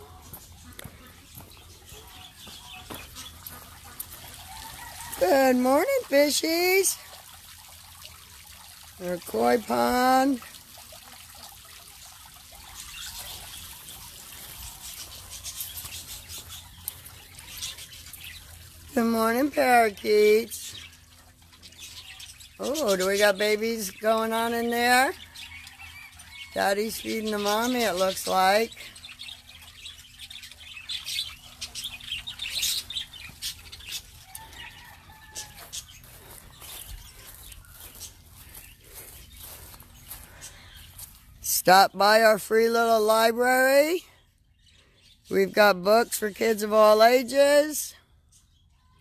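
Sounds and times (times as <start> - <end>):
fountain water splashing and trickling: 0.0 - 41.8
small birds chirping: 0.0 - 49.0
parakeets chattering: 12.3 - 41.1.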